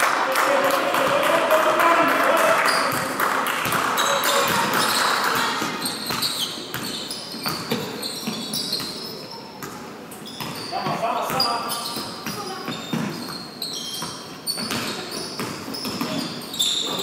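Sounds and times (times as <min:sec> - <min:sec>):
spectators applauding: 0:00.0 - 0:05.6
sneaker squeaks: 0:02.6 - 0:17.0
basketball bouncing on court: 0:02.7 - 0:17.0.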